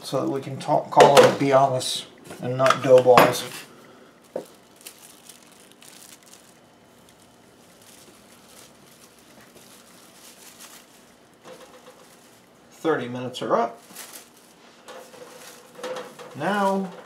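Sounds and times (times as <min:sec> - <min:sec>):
plastic wrap crinkling: 0:04.2 - 0:17.0.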